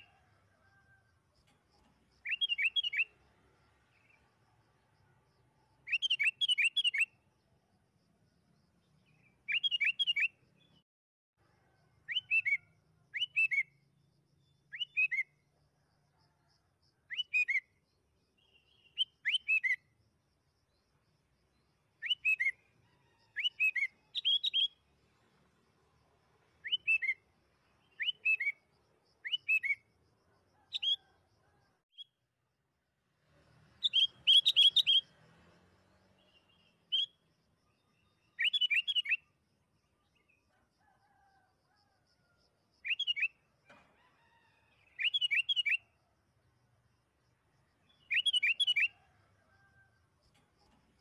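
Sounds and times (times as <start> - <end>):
bird singing chirpy notes: 2.2 - 3.1, 33.8 - 35.1.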